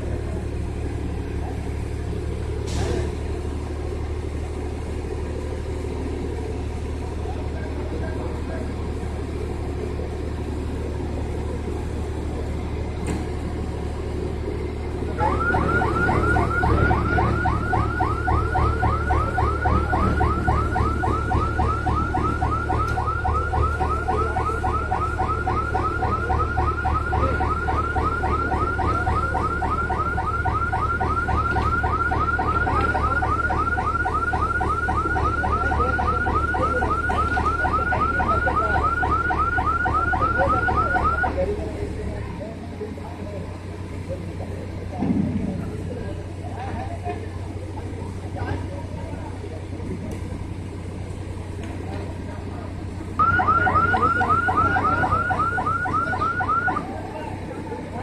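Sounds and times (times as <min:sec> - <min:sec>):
engine droning: 0:00.0 - 0:58.0
warbling electronic alarm: 0:15.2 - 0:41.4, 0:53.2 - 0:57.0.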